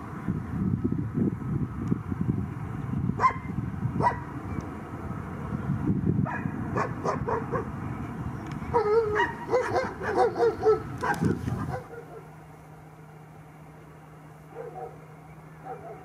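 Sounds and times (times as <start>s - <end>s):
jet airliner rumble: 0.0s - 16.0s
dog barking and yelping: 3.2s - 4.3s, 6.3s - 7.7s, 8.7s - 12.3s, 14.5s - 15.0s, 15.6s - 16.0s.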